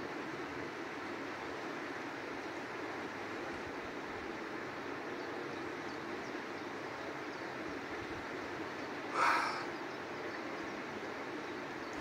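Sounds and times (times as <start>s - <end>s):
river water rushing: 6.1s - 12.0s.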